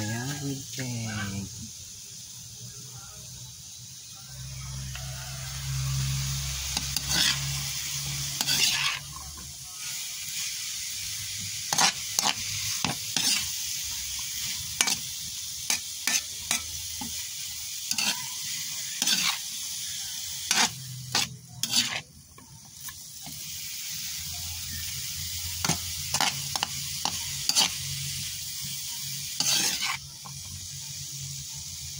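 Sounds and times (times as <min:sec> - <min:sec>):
vegetables sizzling in a pan: 0:00.0 - 0:31.9
utensil scraping a metal pan: 0:06.8 - 0:07.6, 0:08.4 - 0:09.1, 0:11.7 - 0:13.5, 0:15.7 - 0:17.2, 0:17.9 - 0:19.5, 0:20.5 - 0:22.1, 0:25.6 - 0:27.8, 0:29.4 - 0:30.0.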